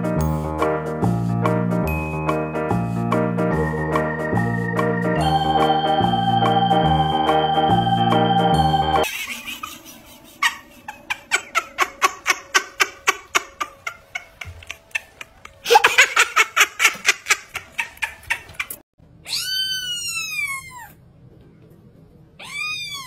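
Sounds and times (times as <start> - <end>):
person giggling: 9.0 - 18.8
kitten meowing: 19.3 - 21.0, 22.4 - 23.0.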